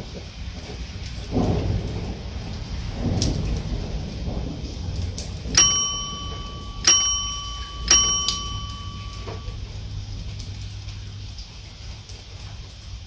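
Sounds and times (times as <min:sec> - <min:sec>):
rain: 0:00.0 - 0:13.0
notification bell dings: 0:05.6 - 0:09.6.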